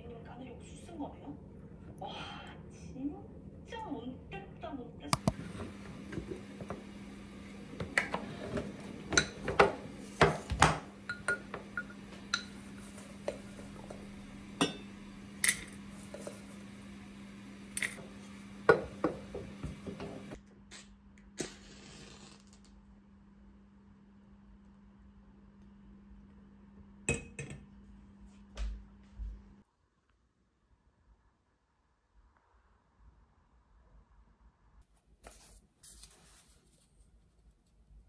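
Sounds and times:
glass clinking: 11.1 - 12.6, 14.6 - 14.9.

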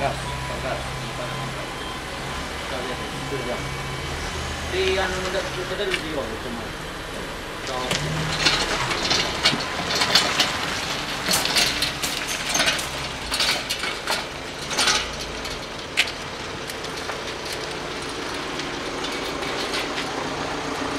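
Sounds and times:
vehicle engine running: 0.0 - 20.9.

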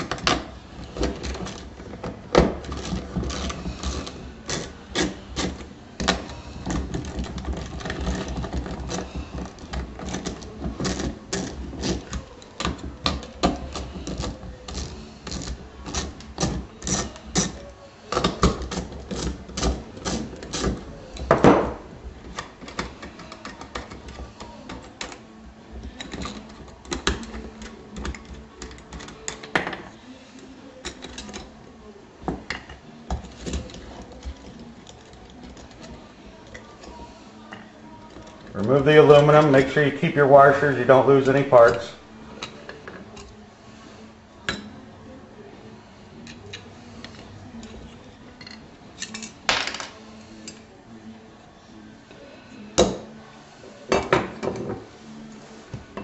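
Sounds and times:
small parts clacking on wood: 0.0 - 25.2, 25.8 - 29.9.

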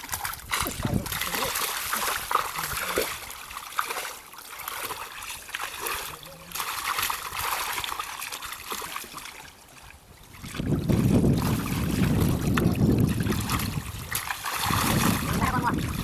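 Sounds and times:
wind rumble on microphone: 0.0 - 3.4, 10.0 - 16.0
muddy water splashing and trickling: 0.0 - 16.0.

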